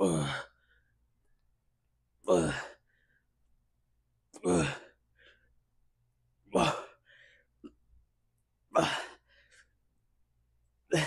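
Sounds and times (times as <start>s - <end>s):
man breathing out hard: 6.6s - 7.5s.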